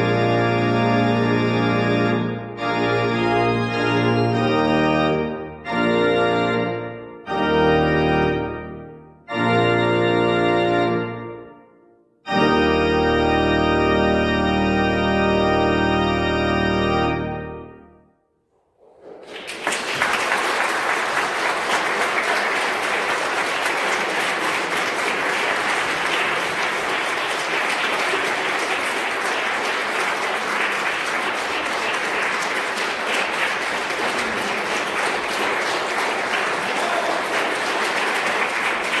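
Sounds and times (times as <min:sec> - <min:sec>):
audience applauding: 0:18.8 - 0:39.0.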